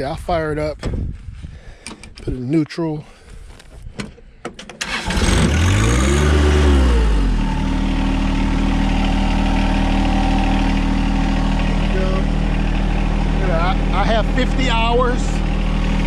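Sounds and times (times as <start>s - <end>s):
tractor diesel engine starting: 4.7s - 16.0s.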